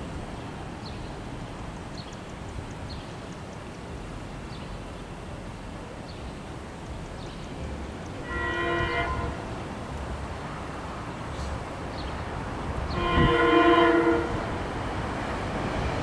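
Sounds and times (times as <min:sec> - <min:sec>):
passing road noise: 0:00.0 - 0:16.0
wind: 0:00.0 - 0:16.0
bird chirping: 0:01.9 - 0:03.4.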